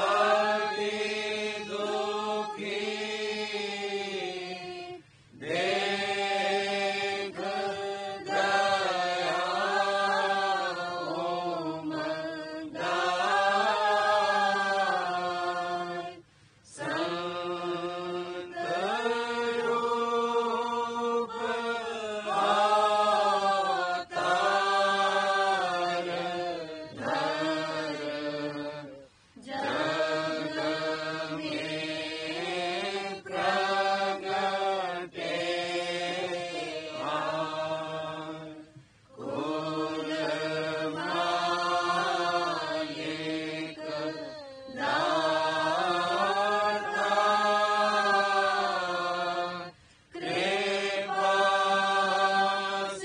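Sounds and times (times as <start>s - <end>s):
devotional hymn chanting: 0.0s - 53.0s.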